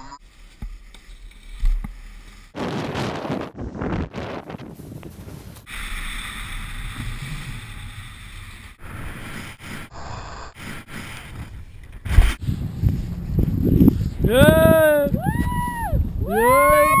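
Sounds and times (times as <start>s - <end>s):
snowboard scraping over snow: 2.0s - 5.9s
wind on microphone: 2.6s - 5.7s, 12.0s - 17.0s.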